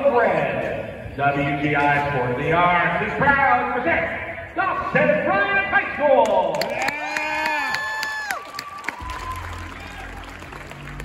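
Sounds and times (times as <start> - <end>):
audience cheering and clapping: 6.5 - 11.0
low electronic drone: 9.0 - 11.0.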